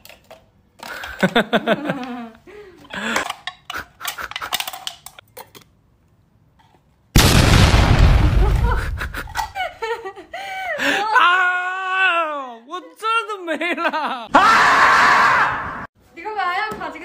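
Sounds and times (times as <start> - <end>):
person laughing: 1.2 - 2.4, 3.0 - 4.7, 8.2 - 11.2, 13.5 - 14.3.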